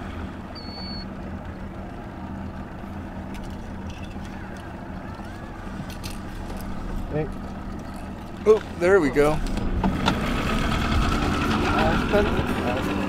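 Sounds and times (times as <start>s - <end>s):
boat motor running: 0.0s - 13.0s.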